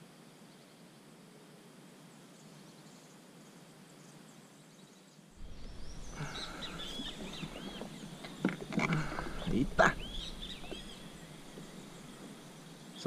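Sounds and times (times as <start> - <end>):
outdoor ambience: 0.0 - 13.0
low rumble: 5.4 - 12.8
birds chirping and calling: 5.4 - 13.0.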